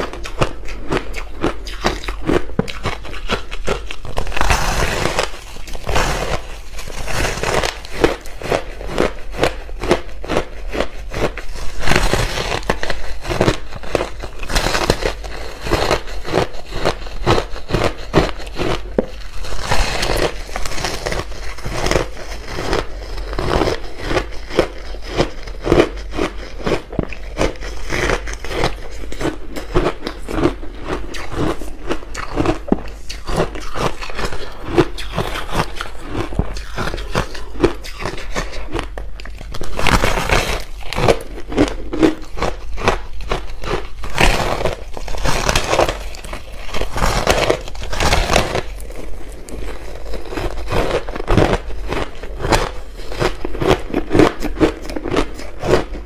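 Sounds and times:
ice crunching being chewed: 0:00.0 - 0:56.0.

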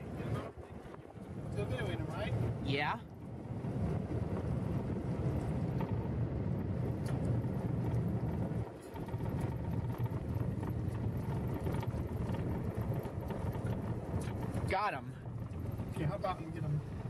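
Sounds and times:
vehicle driving on gravel: 0:03.4 - 0:17.0.

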